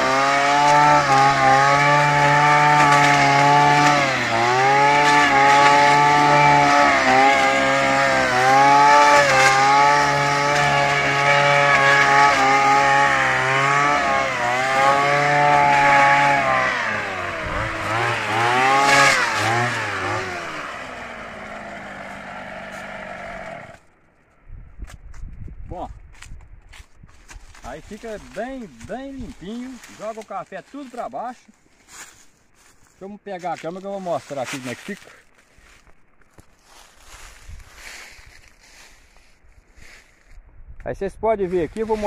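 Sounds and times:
brushcutter engine at high throttle: 0.0s - 23.8s.

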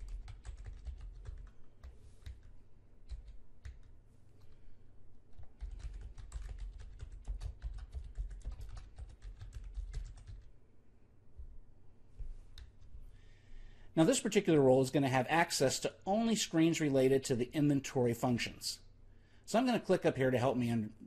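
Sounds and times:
computer keyboard typing: 0.0s - 4.6s, 5.3s - 10.5s.

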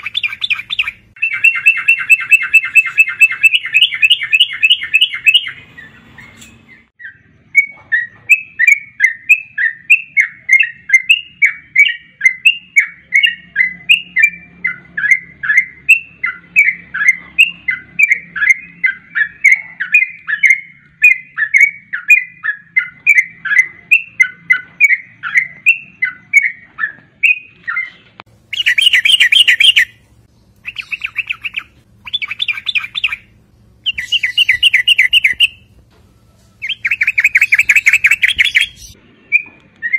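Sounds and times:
bird chattering bursts: 0.0s - 6.9s, 28.5s - 30.0s, 30.6s - 35.7s, 36.6s - 39.0s
bird chirping: 0.0s - 39.9s.

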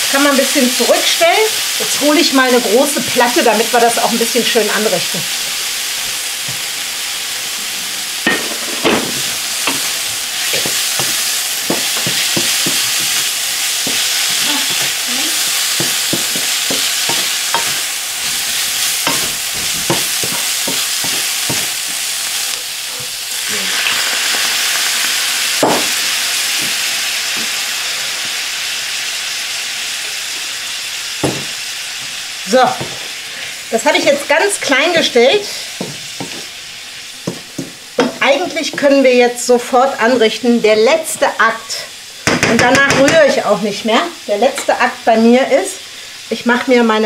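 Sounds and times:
stir-fry sizzling in a hot pan: 0.0s - 47.0s
wooden spatula knocking on pan: 10.6s - 14.9s, 15.8s - 17.8s, 19.0s - 21.7s, 31.2s - 31.6s, 42.2s - 43.4s.

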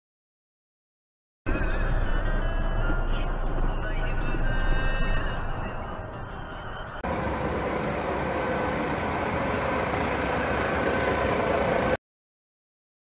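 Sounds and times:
truck diesel engine idling: 1.5s - 12.0s
faint whining tones: 7.0s - 12.0s
quiet driving noise: 7.0s - 12.0s.

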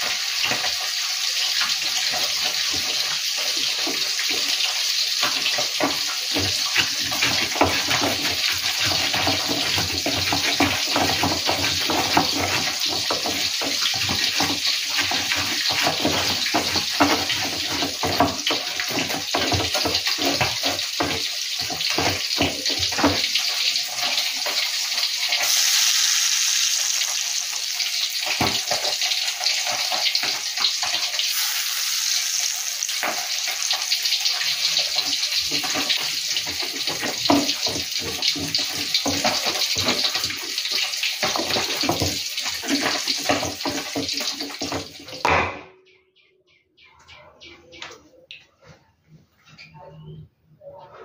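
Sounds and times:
pestle scraping and knocking: 1.5s - 24.6s, 28.2s - 31.1s, 34.4s - 45.7s.

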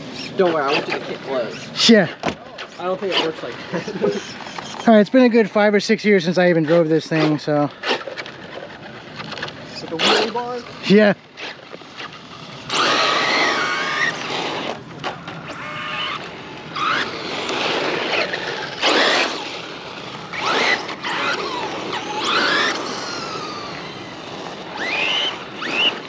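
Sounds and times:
tyres spinning on loose ground: 0.0s - 26.0s
electric motor whining: 6.4s - 26.0s.

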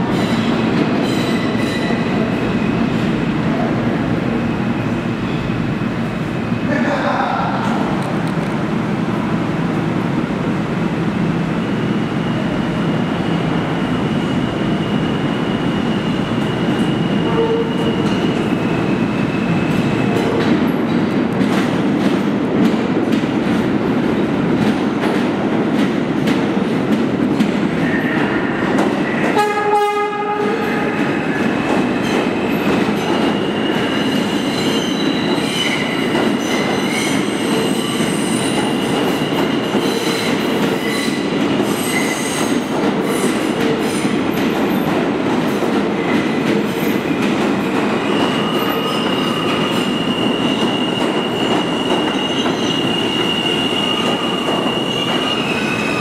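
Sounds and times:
subway train rumbling: 0.0s - 56.0s
train horn blast: 17.2s - 17.8s, 29.3s - 30.9s
high wheel squeal: 48.0s - 56.0s.

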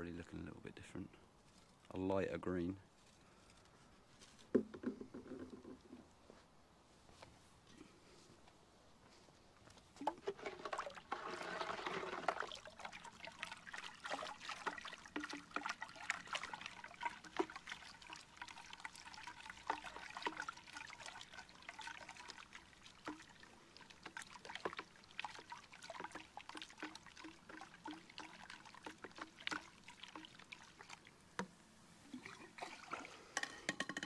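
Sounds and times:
small splashes and bubbling: 10.0s - 33.5s
liquid swirling and gurgling in bucket: 10.0s - 33.6s.

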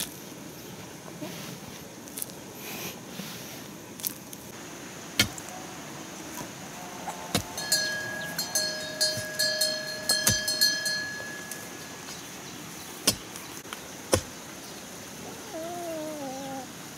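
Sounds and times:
rod thudding into earth: 5.2s - 5.5s.

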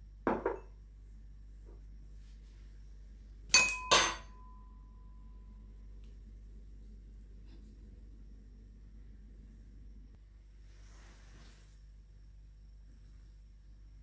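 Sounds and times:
ceramic bowls and spoon clinking: 3.5s - 4.8s.

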